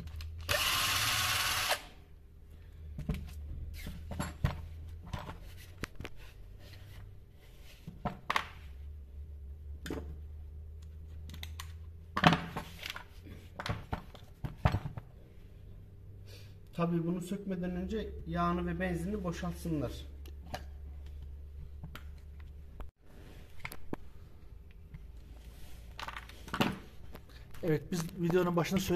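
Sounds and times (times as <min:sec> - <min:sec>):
power tool whirring: 0:00.3 - 0:02.0
tools handled on a workbench: 0:02.9 - 0:08.8, 0:09.8 - 0:15.1, 0:24.7 - 0:28.9.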